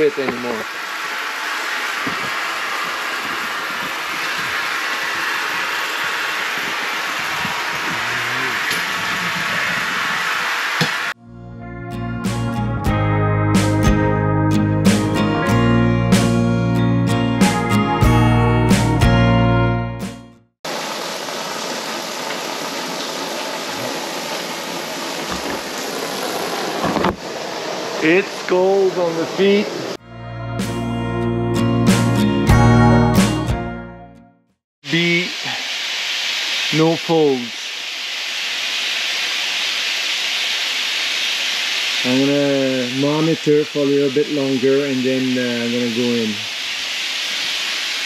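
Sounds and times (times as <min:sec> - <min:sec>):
water pouring into pool: 0:34.9 - 0:43.3.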